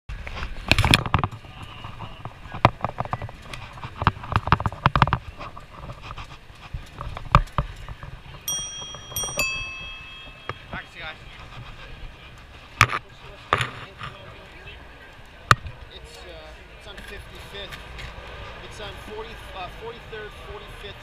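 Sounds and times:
pedicab rattling over street: 0.1s - 21.0s
bicycle bell ringing: 8.5s - 11.2s.

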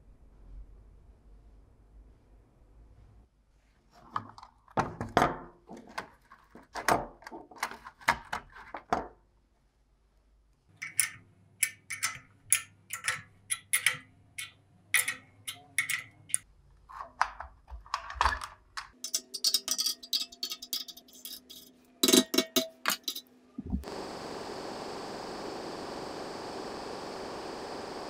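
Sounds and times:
low steady hum: 23.4s - 28.0s.

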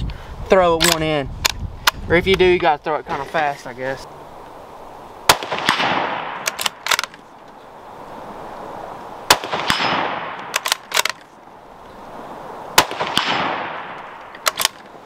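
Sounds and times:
rifle bolt metallic clicks: 0.8s - 2.0s, 6.4s - 7.2s, 9.7s - 11.3s, 13.9s - 15.0s
rifle shots with echo: 5.3s - 7.1s, 9.3s - 11.2s, 12.8s - 14.8s.

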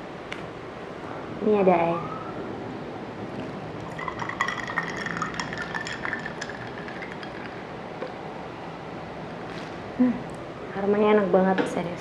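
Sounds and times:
milk pouring into a glass: 3.8s - 7.7s
small glass clinks: 3.9s - 7.7s.

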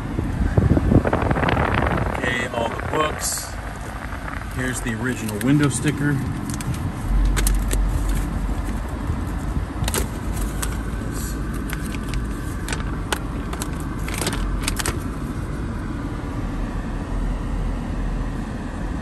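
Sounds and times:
car air conditioning: 0.0s - 19.0s
car engine idling: 0.0s - 19.0s
paper rustling and crinkling: 9.9s - 15.2s.

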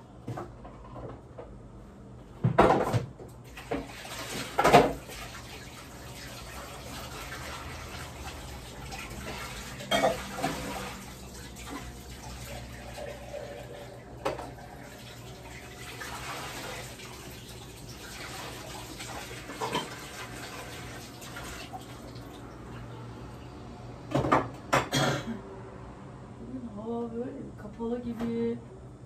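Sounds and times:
water running: 3.5s - 23.4s.

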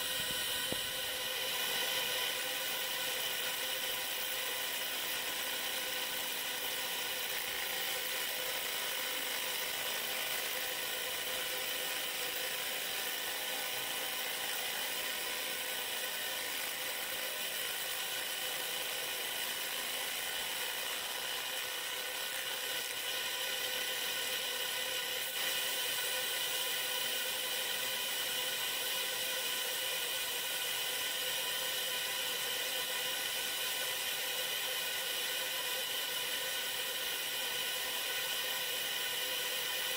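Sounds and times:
whining tones: 0.0s - 7.6s
laser marking machine buzzing: 0.0s - 39.9s.

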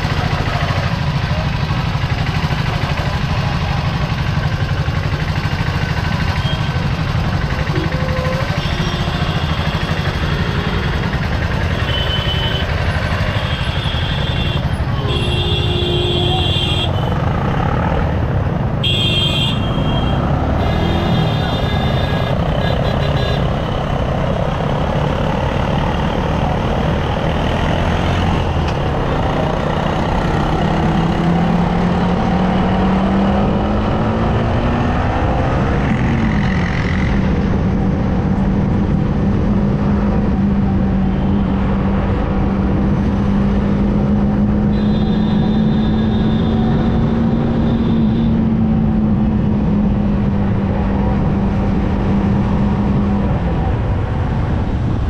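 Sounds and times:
road and wind noise: 0.0s - 55.0s
motorcycle engine accelerating: 20.0s - 55.0s.

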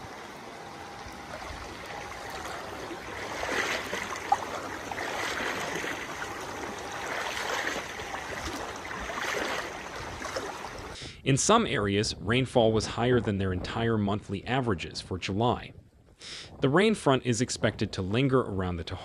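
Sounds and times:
floodwater flowing and splashing: 0.0s - 11.0s.

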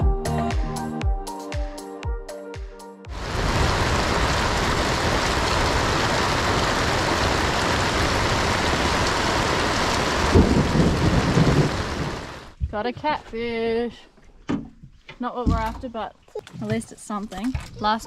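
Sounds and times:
heavy rain falling: 3.1s - 12.6s
thunder rumbling: 3.1s - 12.6s.

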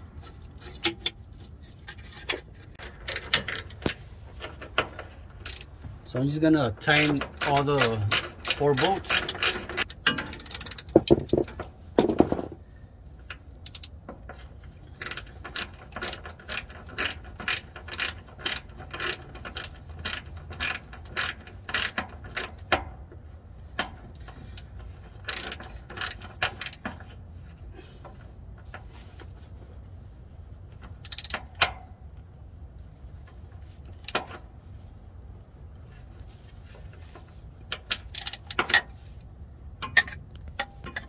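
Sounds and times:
ratchet wrench clicking: 5.3s - 5.7s, 7.0s - 10.9s, 13.3s - 14.0s, 14.9s - 22.7s, 23.7s - 26.8s, 30.9s - 31.7s, 37.7s - 38.8s.

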